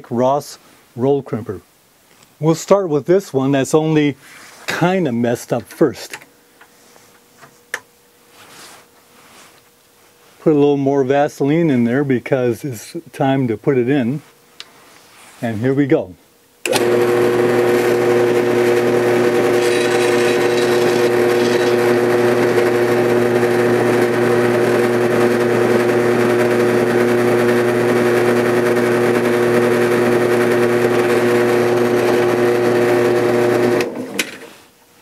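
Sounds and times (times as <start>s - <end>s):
drill press motor humming: 16.6s - 34.2s.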